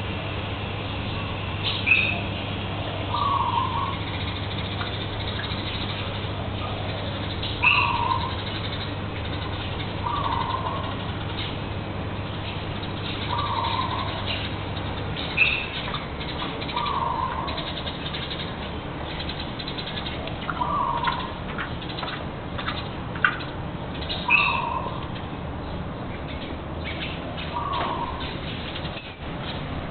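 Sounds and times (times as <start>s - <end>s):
steady background noise: 0.0s - 29.9s
bird calling: 1.0s - 29.9s.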